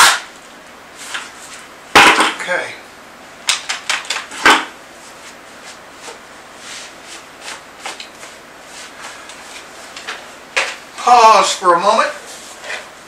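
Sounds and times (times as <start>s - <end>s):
faint rustling and scraping: 5.0s - 10.3s, 12.2s - 13.0s.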